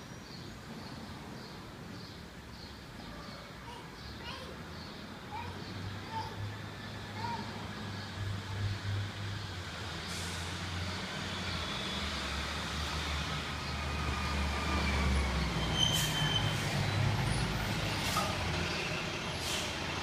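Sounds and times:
bus engine humming: 6.6s - 20.0s
short high squeal: 15.6s - 16.8s.

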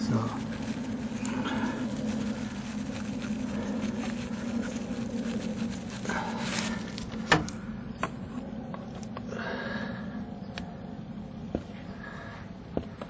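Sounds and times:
cable rustling: 0.0s - 7.6s
steady low hum: 0.0s - 13.0s.

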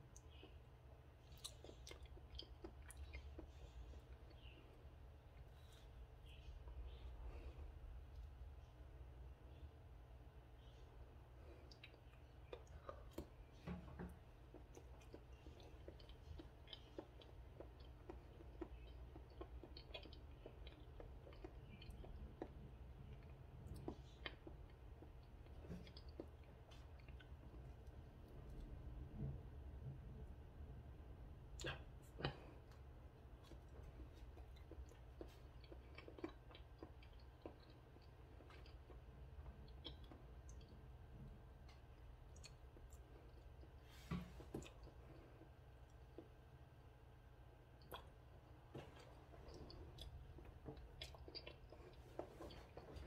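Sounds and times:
low steady hum: 0.0s - 53.0s
chewing clicks: 14.5s - 27.7s.

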